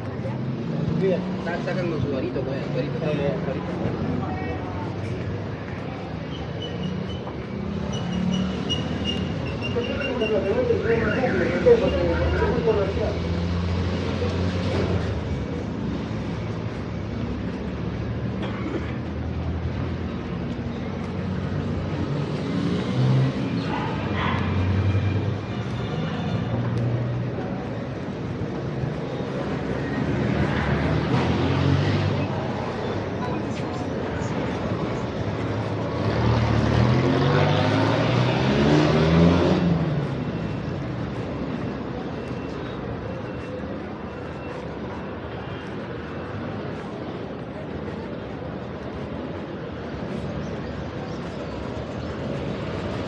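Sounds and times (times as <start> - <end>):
traffic engine rumble: 0.0 - 53.0
vehicle engine accelerating past: 35.9 - 40.1.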